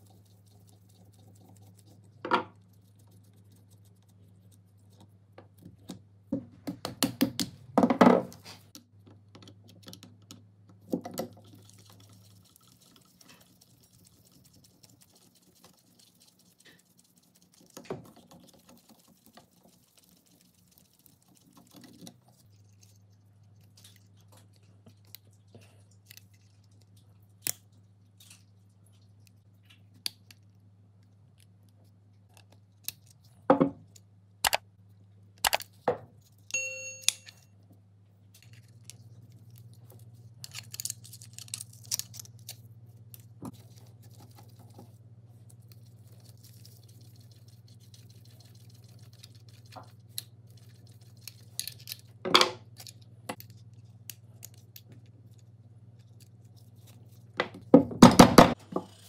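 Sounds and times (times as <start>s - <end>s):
faint low hum: 0.0s - 6.8s, 7.4s - 59.0s
metal parts clicking and clinking: 40.4s - 42.3s, 51.2s - 52.2s.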